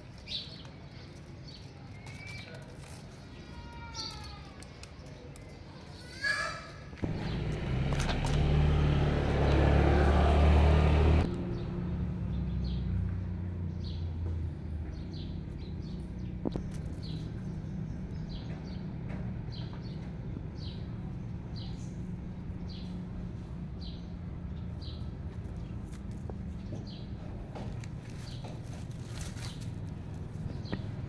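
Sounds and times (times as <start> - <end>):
small birds chirping: 0.0 - 9.7, 11.2 - 31.0
vehicle engine running: 7.0 - 31.0.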